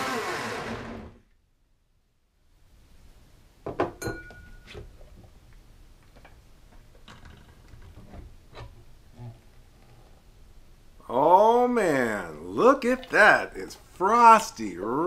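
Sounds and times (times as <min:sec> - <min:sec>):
glass set down on stone counter: 0:03.6 - 0:04.8.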